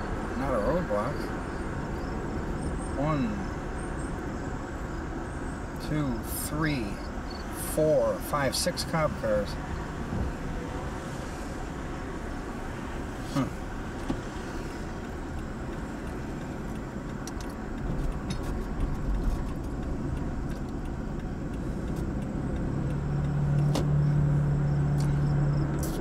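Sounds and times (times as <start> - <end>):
car engine and road noise: 0.0 - 26.0
light clicks and rattles: 15.0 - 24.1.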